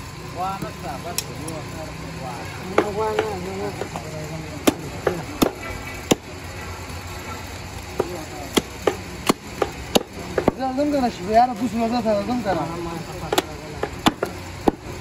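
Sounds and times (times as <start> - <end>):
cleaver chopping ribs on wood: 2.7 - 6.3, 7.9 - 10.6, 13.2 - 15.0.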